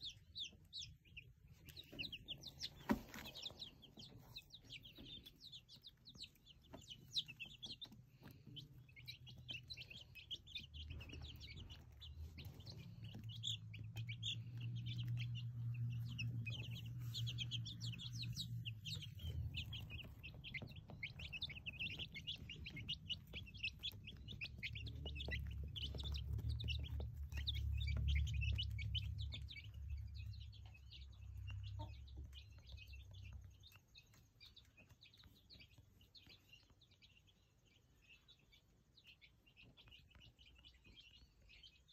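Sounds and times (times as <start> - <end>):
chicks peeping: 0.0 - 41.9
low rumble: 10.6 - 33.5.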